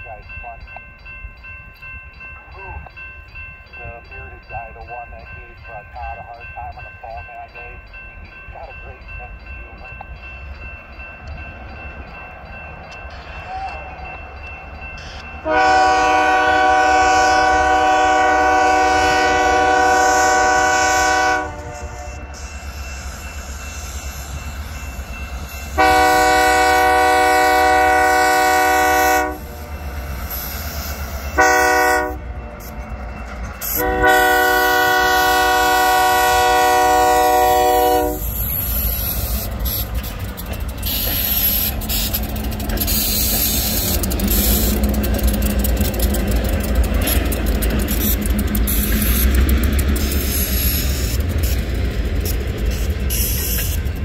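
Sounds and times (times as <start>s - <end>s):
locomotive engine rumble: 0.0s - 54.0s
train wheels clacking: 0.0s - 54.0s
locomotive horn blasts: 15.0s - 22.4s, 25.7s - 29.8s, 31.2s - 32.8s, 33.6s - 38.4s.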